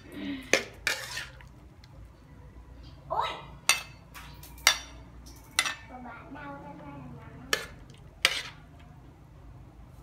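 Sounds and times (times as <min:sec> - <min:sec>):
metal spoon scraping a wok: 0:00.0 - 0:01.5, 0:07.5 - 0:08.8.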